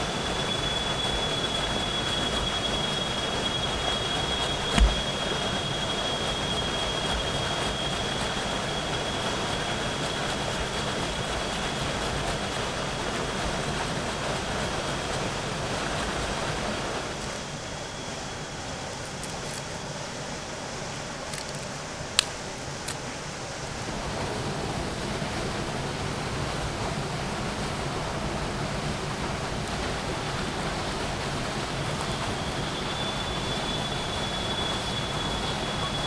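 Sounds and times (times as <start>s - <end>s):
faint high steady tone: 0.0s - 11.8s, 17.0s - 23.4s, 31.6s - 36.0s
flowing water rushing: 0.0s - 36.0s.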